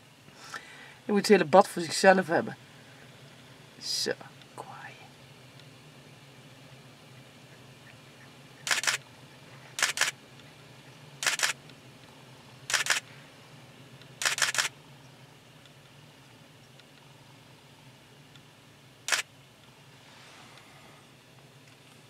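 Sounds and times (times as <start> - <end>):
camera shutter bursts: 8.6 - 9.0, 9.7 - 10.2, 11.2 - 11.6, 12.7 - 13.1, 14.2 - 14.8, 19.1 - 19.3.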